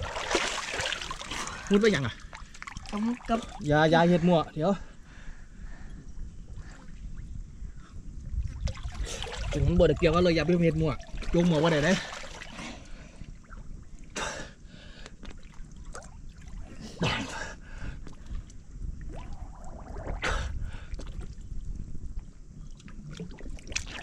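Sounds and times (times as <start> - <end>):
water sloshing and splashing: 0.0 - 3.9, 8.3 - 14.2, 15.0 - 17.0, 17.9 - 24.0.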